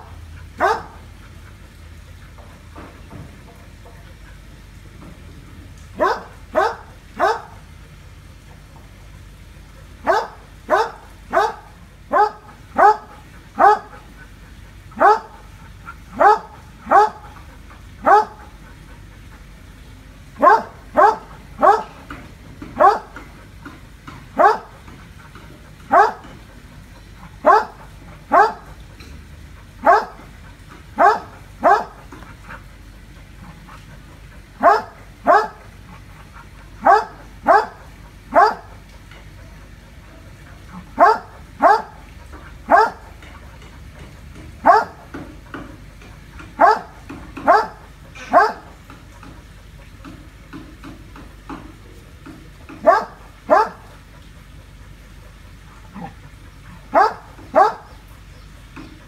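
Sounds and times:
dog barking: 0.0s - 1.0s, 6.0s - 7.6s, 10.0s - 14.1s, 15.0s - 15.5s, 16.1s - 17.3s, 18.0s - 18.5s, 20.4s - 22.0s, 22.7s - 23.2s, 24.1s - 24.8s, 25.9s - 26.4s, 27.4s - 28.8s, 29.8s - 30.2s, 31.0s - 32.0s, 34.6s - 35.7s, 36.8s - 38.8s, 41.0s - 42.0s, 42.7s - 43.1s, 44.6s - 45.0s, 46.6s - 48.7s, 52.7s - 53.9s, 56.9s - 58.0s.

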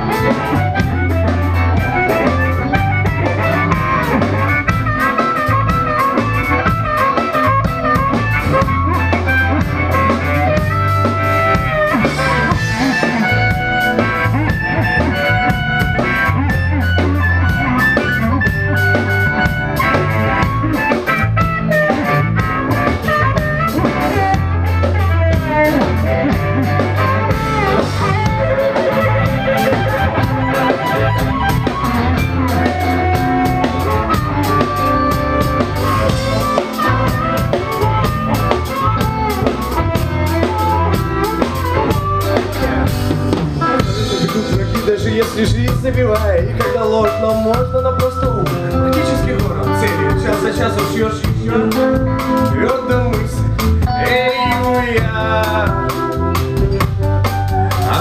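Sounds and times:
amplified harmonica: 0.0s - 58.0s
bass guitar: 0.0s - 58.0s
drum kit steady beat: 0.0s - 58.0s
electric guitar: 0.0s - 58.0s.

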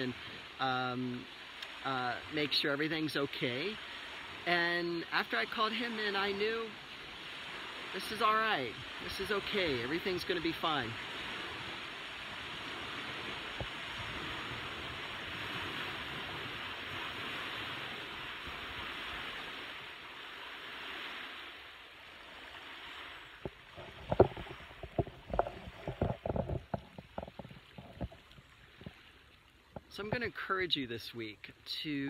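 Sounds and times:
waves washing onto pebbles: 0.0s - 29.2s
sharp clicks and knocks: 23.4s - 28.9s.

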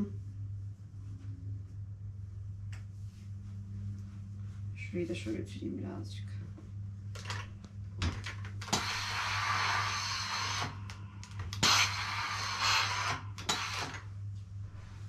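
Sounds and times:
low hum: 0.0s - 15.0s
steam iron hissing: 8.6s - 10.8s, 11.6s - 14.0s.

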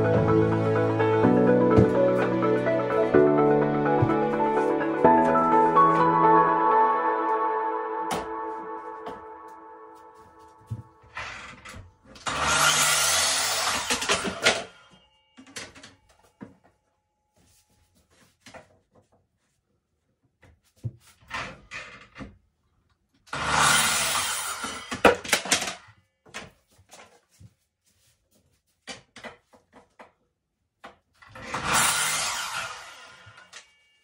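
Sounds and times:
electric saw cutting wood: 11.0s - 15.0s, 23.3s - 25.3s, 31.3s - 33.7s.

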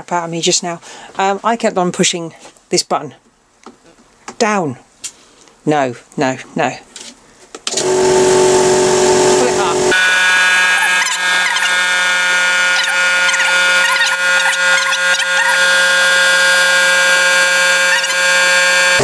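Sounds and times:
air compressor whining: 7.7s - 19.0s
faint squeaks: 10.6s - 18.3s.

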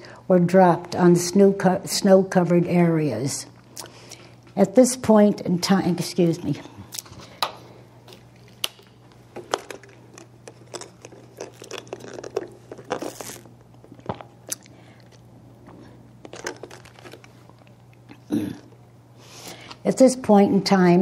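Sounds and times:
plastic bottle crinkling: 8.1s - 15.2s, 15.8s - 17.8s.

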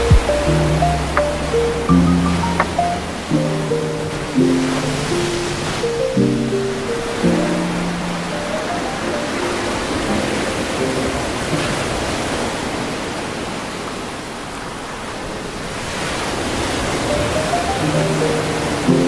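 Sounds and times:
background music: 0.0s - 11.3s
steady rushing noise: 0.0s - 13.3s.

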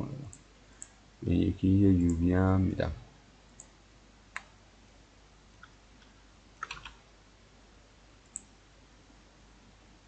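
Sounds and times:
computer mouse clicks: 0.3s - 1.0s, 3.5s - 4.6s, 5.6s - 7.0s, 8.2s - 8.5s.

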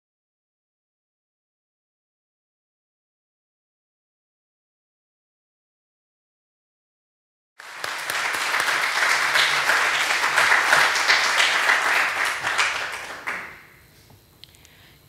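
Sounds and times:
audience applause: 7.6s - 13.8s.

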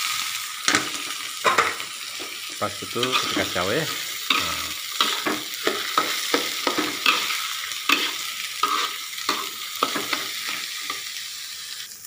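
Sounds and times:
oil sizzling: 0.0s - 12.0s
metal spatula scraping a wok: 3.0s - 11.0s.

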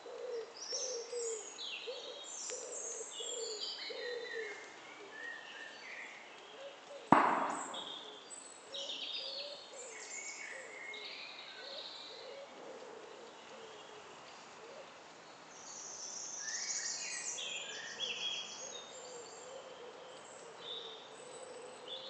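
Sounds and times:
birds singing and chirping: 0.0s - 13.9s
sharp ringing knock: 7.2s - 8.2s.

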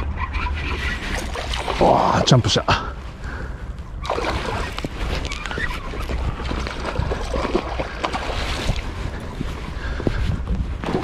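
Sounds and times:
fish splashing in water: 1.0s - 2.0s, 4.0s - 9.2s
wind buffeting the microphone: 1.1s - 11.0s.

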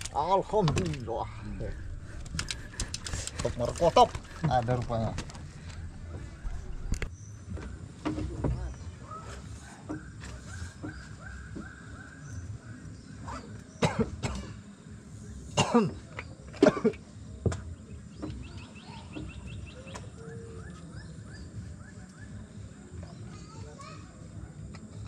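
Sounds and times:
man coughing: 15.6s - 16.0s.

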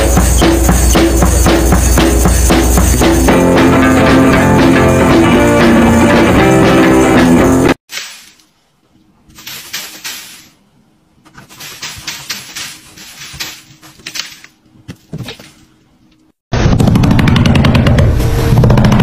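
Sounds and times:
music track: 0.0s - 7.8s.

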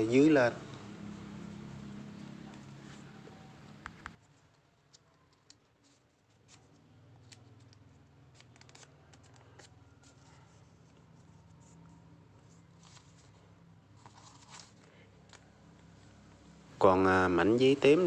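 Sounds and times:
paper crinkling and clicking: 2.4s - 15.8s.

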